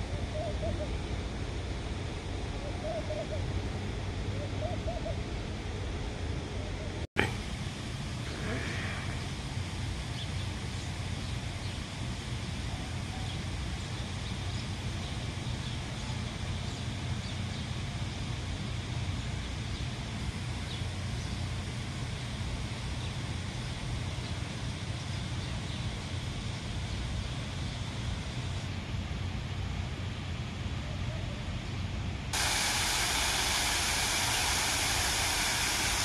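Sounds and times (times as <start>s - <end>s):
low outdoor rumble: 0.0s - 36.0s.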